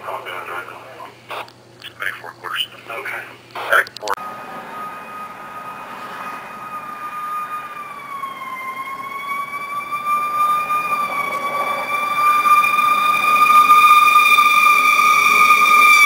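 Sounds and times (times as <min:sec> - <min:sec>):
fire siren wailing: 0:04.2 - 0:16.0.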